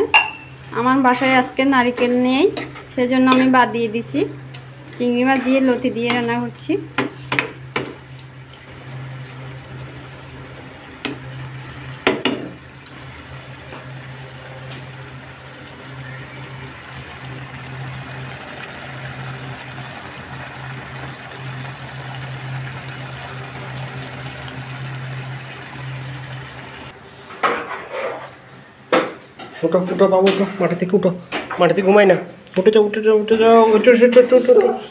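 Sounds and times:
curry bubbling and sizzling in a pan: 6.9s - 27.0s.

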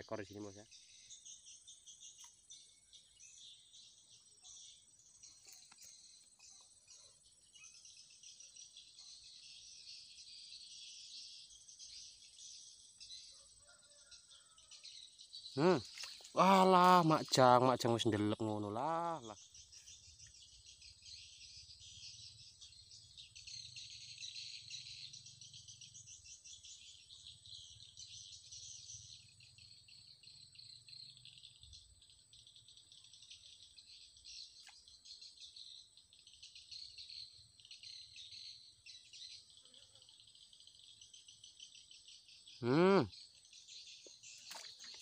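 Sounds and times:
insects chirping: 0.0s - 45.0s
person exclaiming: 42.6s - 43.1s.

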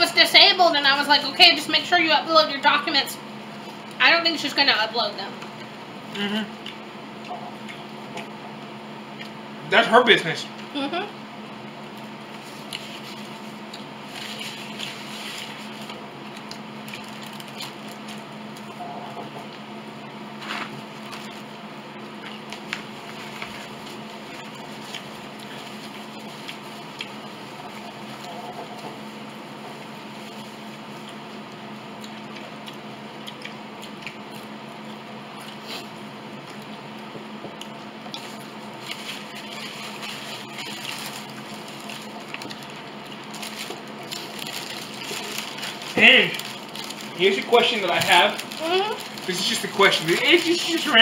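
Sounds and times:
electrical hum: 0.0s - 51.0s
person chewing: 5.6s - 9.4s, 11.9s - 19.6s, 22.1s - 50.9s.

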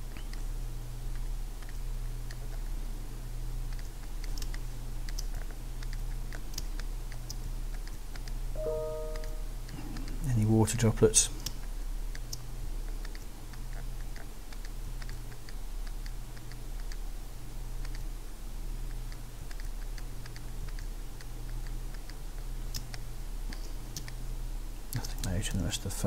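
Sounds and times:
keyboard keys clicking: 3.8s - 9.4s
low hum: 8.6s - 10.2s.

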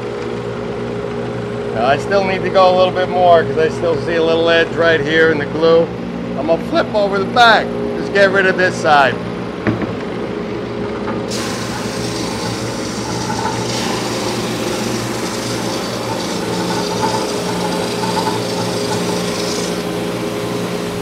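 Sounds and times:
sander motor hum: 10.7s - 21.0s
abrasive hissing on wood: 11.3s - 17.5s.

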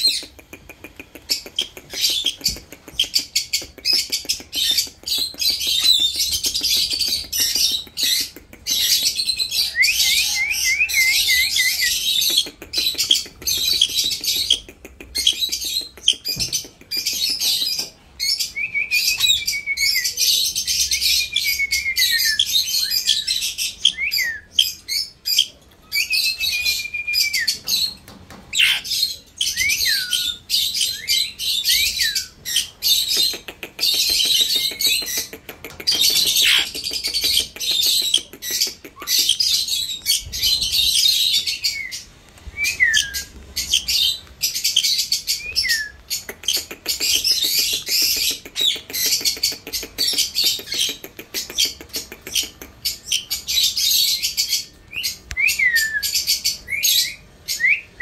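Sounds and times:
parakeets chirping: 0.0s - 57.9s
downward-sliding whistled calls: 3.9s - 14.6s, 17.1s - 58.0s.

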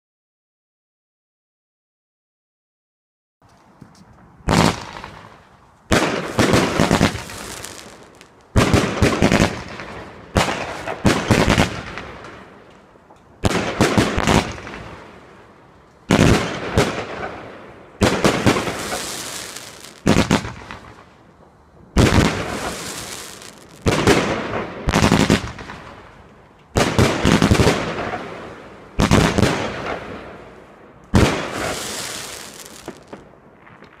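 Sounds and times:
firework volleys banging: 3.4s - 15.0s, 16.1s - 30.2s, 31.1s - 34.0s
firework shells bursting overhead: 4.4s - 12.6s, 16.1s - 34.0s.

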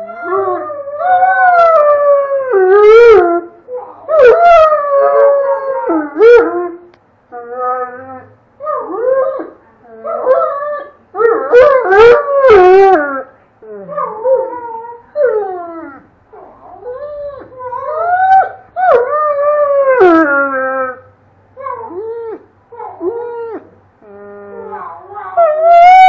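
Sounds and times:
dog howling: 24.5s - 26.0s.

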